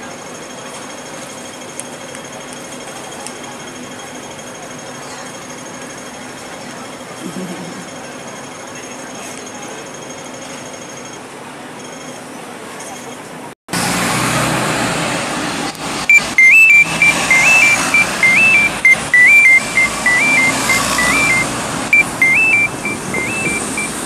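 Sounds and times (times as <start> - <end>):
buses passing: 0.0 - 24.0
traffic noise: 0.0 - 24.0
two-note electronic beep: 16.1 - 24.0.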